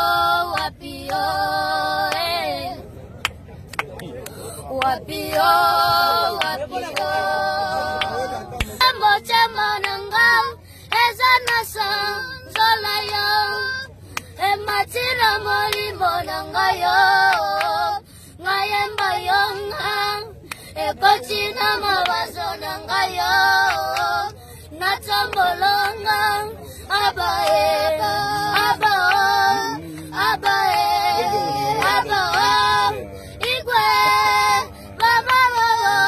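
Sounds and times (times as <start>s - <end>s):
boys singing: 0.0s - 2.8s, 4.7s - 36.0s.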